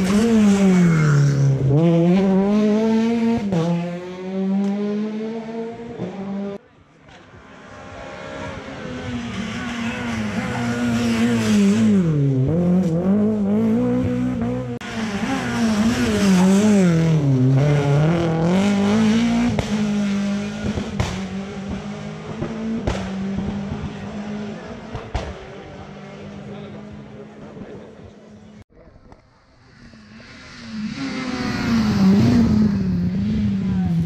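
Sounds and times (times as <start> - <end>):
rally car engine revving: 0.0 - 28.6, 29.7 - 34.0.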